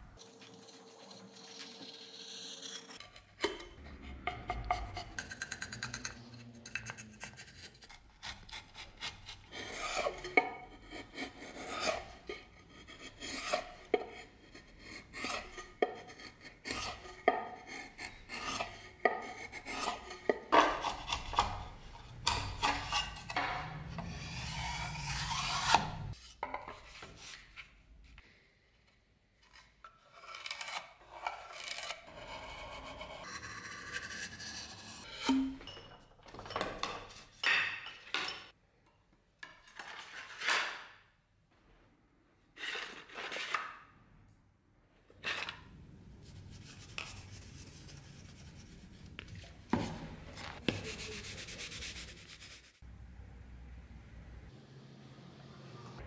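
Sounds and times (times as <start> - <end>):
chisel shaving and scraping wood: 0.2 - 26.2, 29.5 - 35.5.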